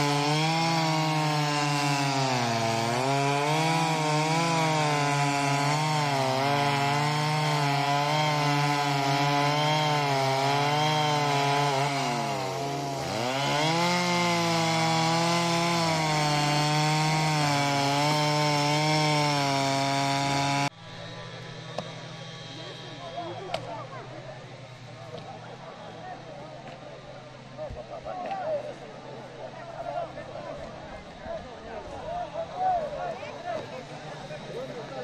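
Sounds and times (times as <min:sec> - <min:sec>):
chainsaw cutting wood: 0:00.0 - 0:23.8.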